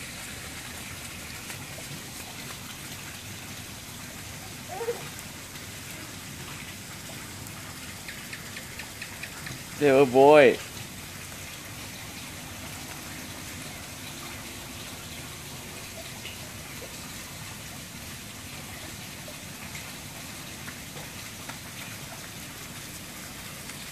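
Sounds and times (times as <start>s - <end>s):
steady water-like hiss: 0.0s - 23.9s
faint ticks: 7.4s - 9.8s.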